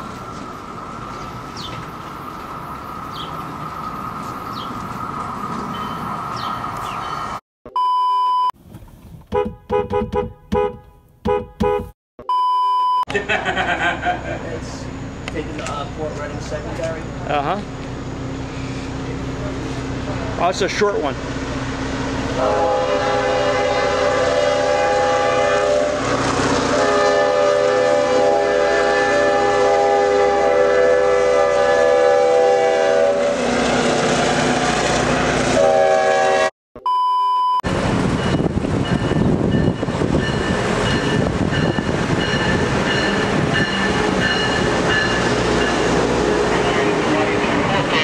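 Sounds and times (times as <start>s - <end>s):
electric train rumbling: 0.0s - 7.4s, 13.1s - 36.5s, 37.7s - 48.0s
freight train rumbling: 0.0s - 7.4s, 13.2s - 36.5s, 37.6s - 48.0s
short steady beep: 7.7s - 8.5s, 11.3s - 13.0s, 36.8s - 37.6s
locomotive air horn chord: 22.4s - 34.7s, 35.5s - 36.5s.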